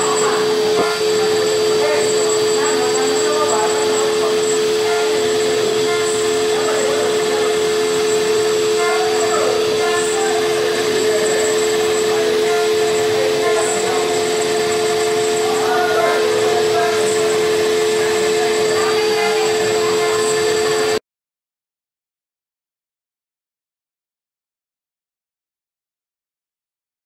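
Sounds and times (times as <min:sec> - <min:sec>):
cnc router spindle whine: 0:00.0 - 0:21.0
router bit cutting wood: 0:00.0 - 0:21.0.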